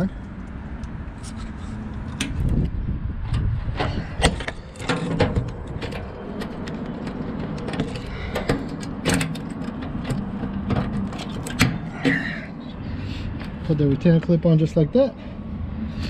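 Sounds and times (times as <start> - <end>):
metallic clicks of lock parts: 4.2 - 12.1.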